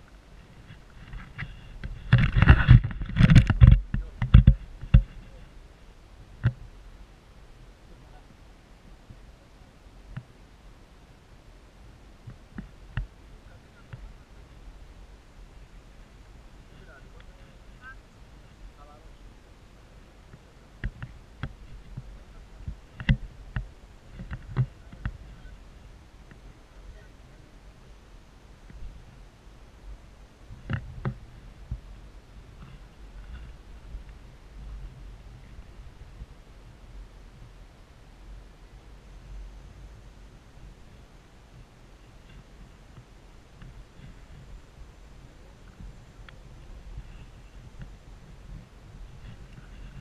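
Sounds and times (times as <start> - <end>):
camera handling bumps and rustles: 0.4 - 5.4
irregular knocks and clicks: 1.0 - 5.3.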